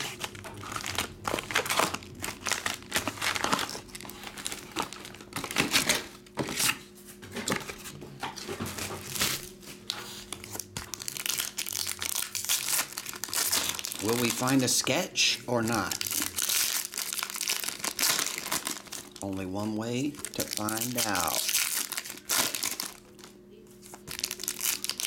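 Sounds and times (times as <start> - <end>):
foil packs crinkling: 0.0 - 6.8, 8.6 - 25.0.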